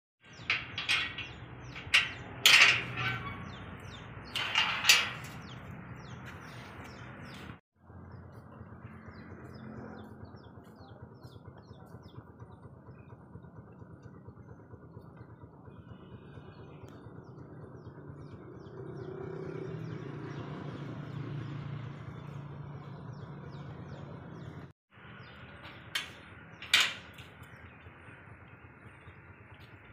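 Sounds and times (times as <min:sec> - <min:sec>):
low hum: 0:00.2 - 0:11.5
birds chirping: 0:00.2 - 0:29.9.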